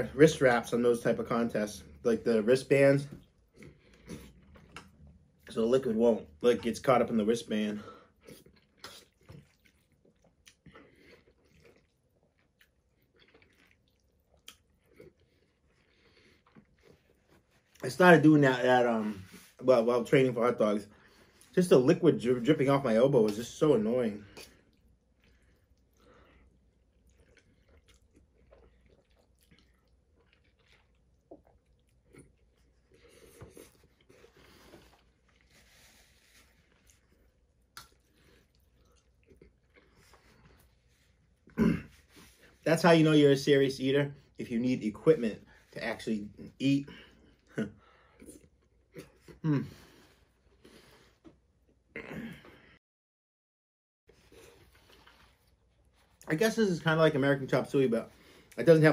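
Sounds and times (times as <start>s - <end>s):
man chewing food: 3.1s - 5.5s, 8.0s - 17.8s, 24.3s - 42.6s, 46.9s - 52.6s, 54.1s - 56.3s.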